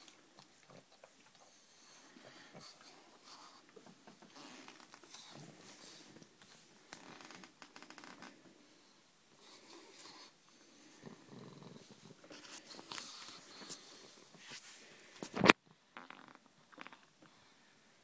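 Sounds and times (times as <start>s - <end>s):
dog breathing and snuffling: 0.0s - 6.7s, 9.3s - 14.8s
rustling: 11.7s - 15.6s.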